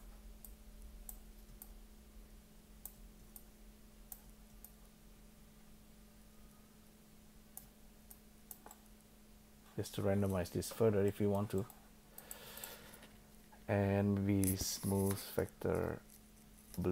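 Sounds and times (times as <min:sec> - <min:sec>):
low steady hum: 0:00.0 - 0:16.9
computer clicking: 0:00.4 - 0:01.8, 0:02.8 - 0:03.5, 0:04.1 - 0:04.8, 0:07.5 - 0:09.0.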